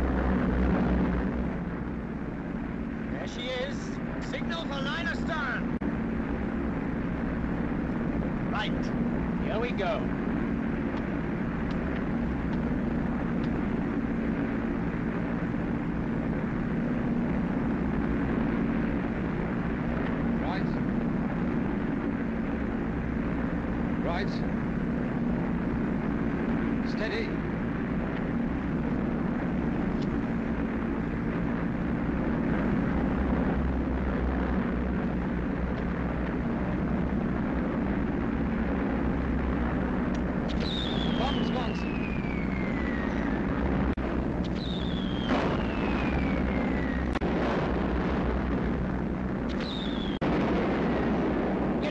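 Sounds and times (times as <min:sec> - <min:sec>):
aircraft engines droning: 0:00.0 - 0:51.9.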